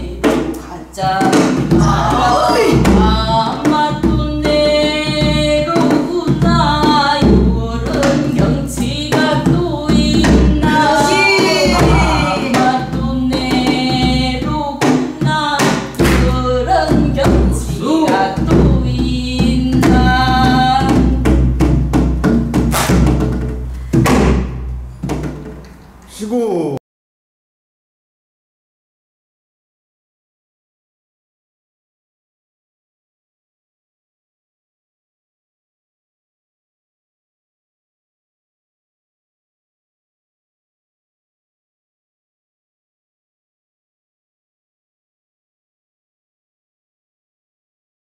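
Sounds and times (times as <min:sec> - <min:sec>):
woman singing: 0:00.0 - 0:21.4
barrel drum strokes: 0:08.8 - 0:25.6.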